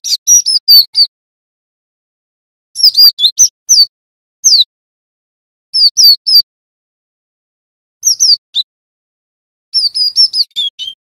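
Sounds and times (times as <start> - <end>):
bird singing high whistled notes: 0.0 - 1.1, 2.8 - 4.7, 5.8 - 6.5, 8.0 - 8.7, 9.8 - 11.0.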